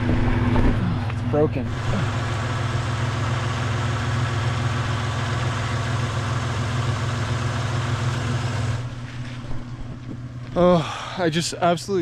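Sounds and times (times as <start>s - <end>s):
truck engine idling: 1.7s - 10.5s.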